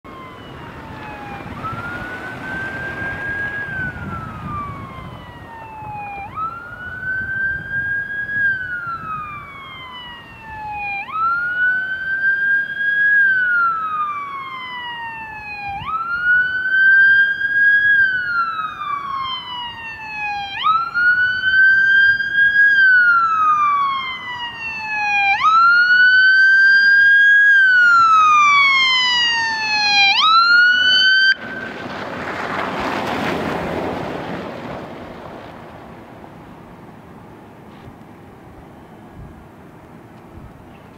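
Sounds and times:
siren wailing: 0:00.0 - 0:32.0.

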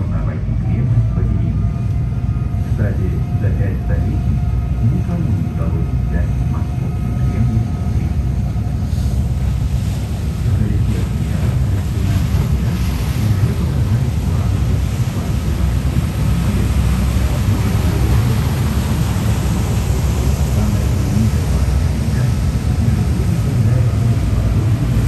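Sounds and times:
boat engine rumble: 0:00.0 - 0:25.0
water hissing along hull: 0:00.0 - 0:25.0
wind buffeting microphone: 0:00.0 - 0:25.0.

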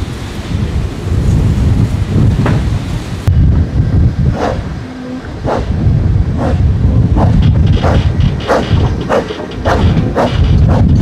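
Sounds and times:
train rumble: 0:00.0 - 0:11.0
steam locomotive chuffs: 0:04.3 - 0:11.0.

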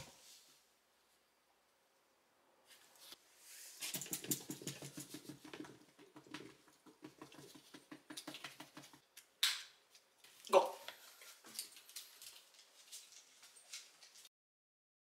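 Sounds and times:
light tapping and rustling: 0:03.8 - 0:09.1.

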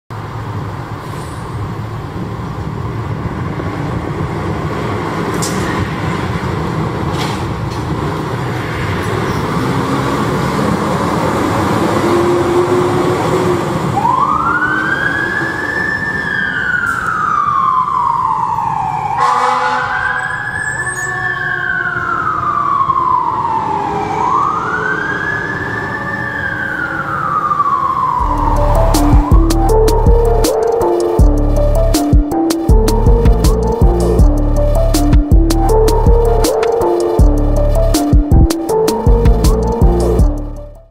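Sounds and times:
diesel engine and road noise: 0:00.1 - 0:21.7, 0:27.1 - 0:40.9
fire engine siren wailing: 0:08.4 - 0:40.9.

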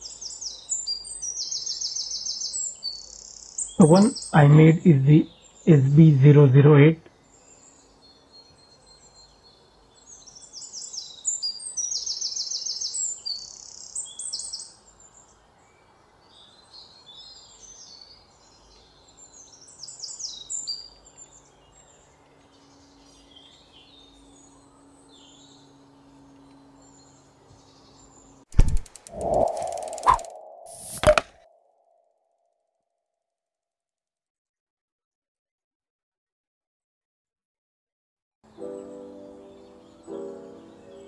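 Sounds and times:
birds chirping and singing: 0:00.0 - 0:06.1, 0:07.2 - 0:15.6, 0:16.3 - 0:31.0.

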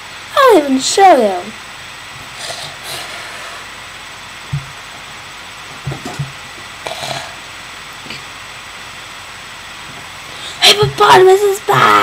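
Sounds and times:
soft low thumps: 0:04.5 - 0:04.8.

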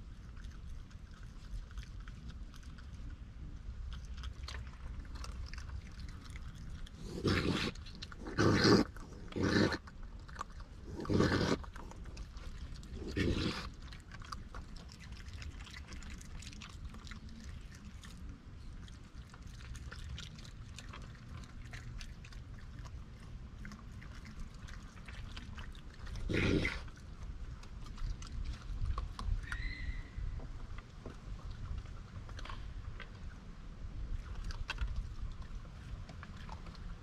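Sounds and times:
raccoons chewing food: 0:00.0 - 0:37.0
raccoon snarls: 0:04.0 - 0:18.2, 0:18.8 - 0:30.0.

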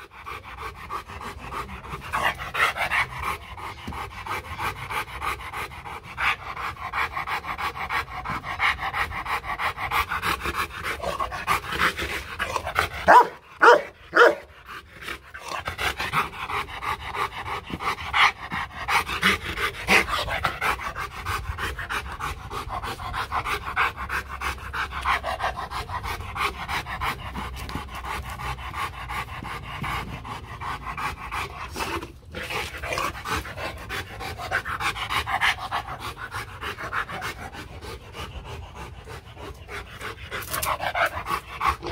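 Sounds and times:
dog panting: 0:00.0 - 0:41.9
dog barking: 0:13.1 - 0:14.5.

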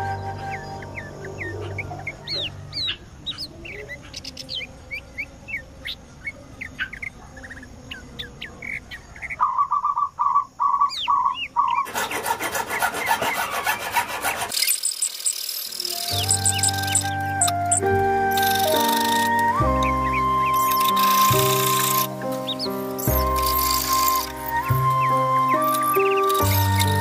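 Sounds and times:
hacksaw rasping through plastic: 0:11.8 - 0:16.3
marker squeaking on board: 0:11.8 - 0:19.5, 0:20.5 - 0:27.0.

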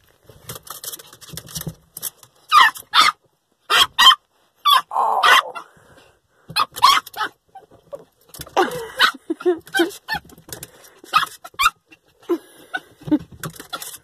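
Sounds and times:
small dog yelping and whining: 0:02.5 - 0:05.7, 0:06.5 - 0:08.1, 0:08.7 - 0:10.4, 0:11.1 - 0:12.9.

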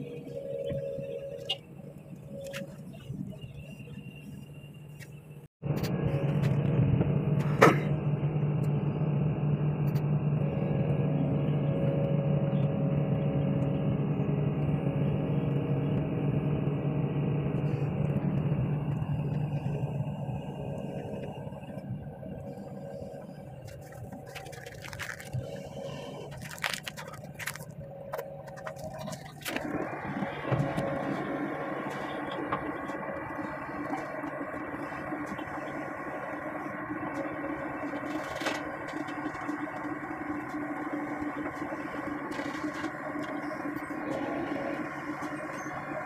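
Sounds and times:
excavator diesel engine running: 0:00.0 - 0:46.0.

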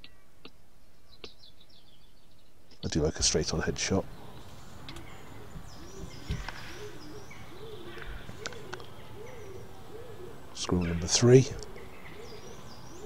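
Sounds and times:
small birds chirping: 0:00.0 - 0:13.0
pigeon cooing: 0:04.9 - 0:10.6, 0:11.5 - 0:13.0.

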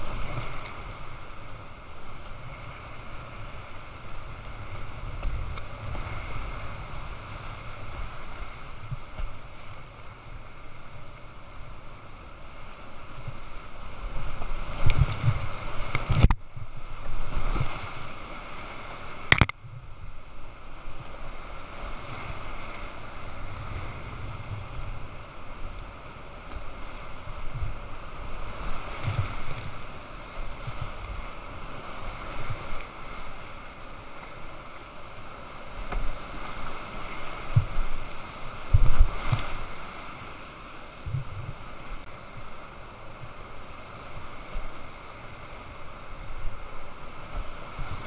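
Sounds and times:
wind buffeting microphone: 0:21.2 - 0:26.0, 0:36.1 - 0:40.1.

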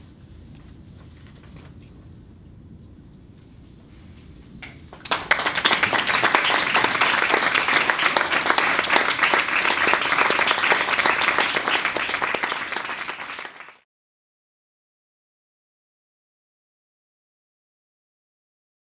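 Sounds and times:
audience applauding: 0:05.0 - 0:13.8.

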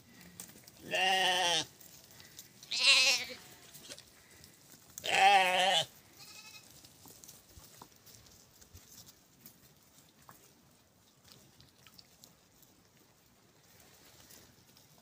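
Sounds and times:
goats bleating: 0:00.8 - 0:01.7, 0:02.6 - 0:03.8, 0:05.0 - 0:06.7.

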